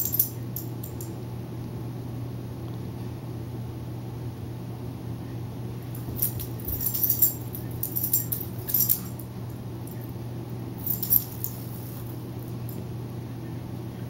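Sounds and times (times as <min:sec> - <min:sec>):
dog collar tags jingling: 0:00.0 - 0:01.1, 0:06.0 - 0:09.3, 0:10.8 - 0:12.8.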